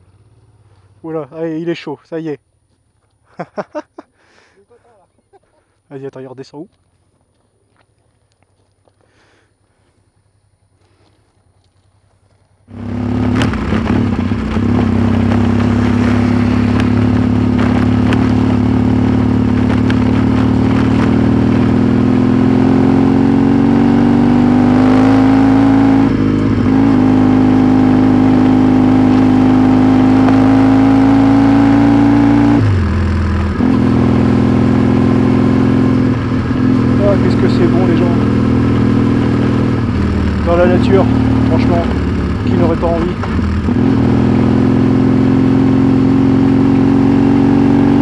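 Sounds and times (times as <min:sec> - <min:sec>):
motorcycle engine: 0:00.0 - 0:01.8, 0:12.6 - 0:48.0.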